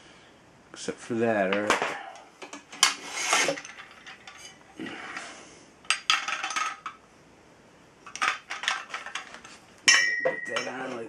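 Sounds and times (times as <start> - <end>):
metal parts clinking and rattling: 2.4 - 4.6, 5.9 - 7.0, 8.1 - 11.0.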